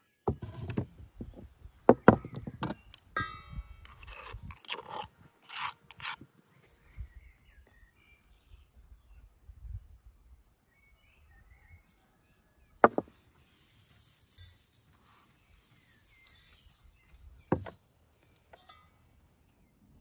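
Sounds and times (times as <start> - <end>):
spoon clinking on ceramic bowls: 3.0 - 6.2, 13.7 - 15.0, 15.7 - 17.0.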